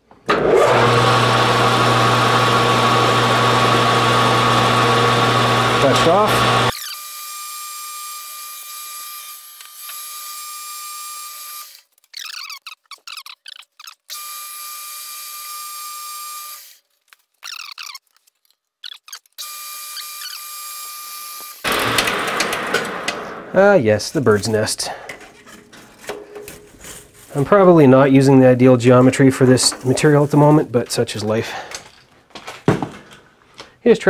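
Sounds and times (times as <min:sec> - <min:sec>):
metal lathe whining: 0:00.3 - 0:07.0
cutting tool squealing: 0:00.8 - 0:07.4, 0:08.6 - 0:16.8, 0:17.4 - 0:18.2, 0:18.8 - 0:21.7.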